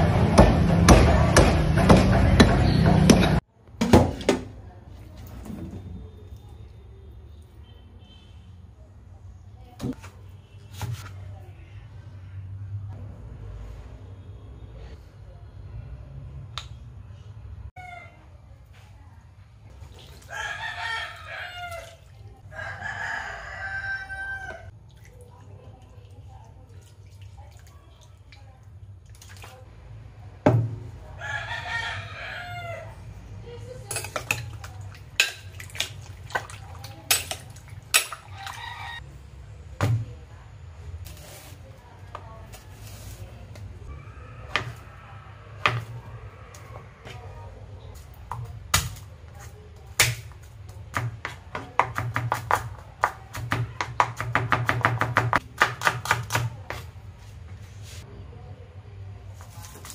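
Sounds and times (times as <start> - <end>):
rooster crowing: 20.3 - 24.7, 31.2 - 33.0, 38.3 - 39.0
knife chopping on plastic board: 49.9 - 56.8.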